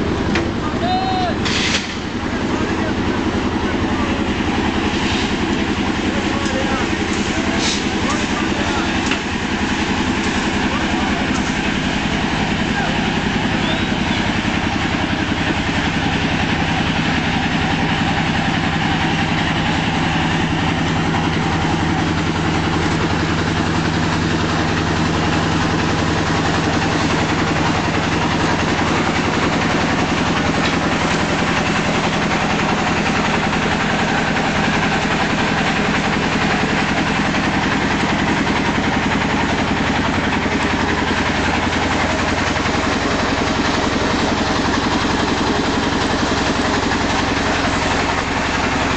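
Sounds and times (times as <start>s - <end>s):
engine idling: 0.0s - 48.9s.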